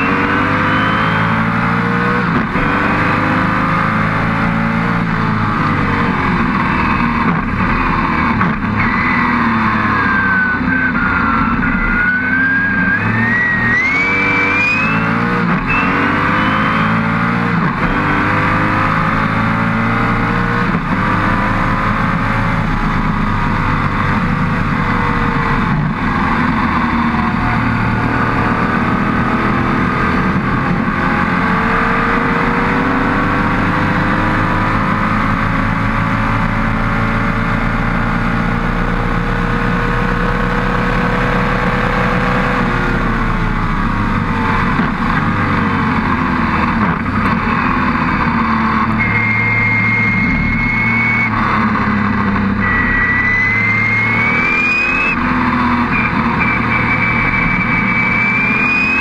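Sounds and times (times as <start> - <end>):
racing engine at full throttle: 0.0 - 59.0
high whine: 4.2 - 30.6, 46.7 - 59.0.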